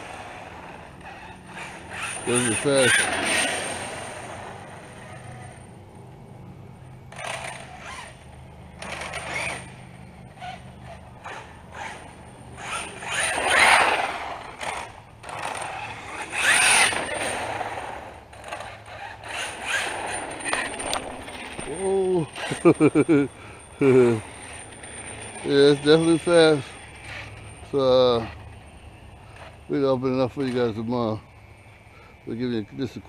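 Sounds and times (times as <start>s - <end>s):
electric motor whine: 0.0s - 22.9s
tyre noise on pavement: 7.1s - 29.7s.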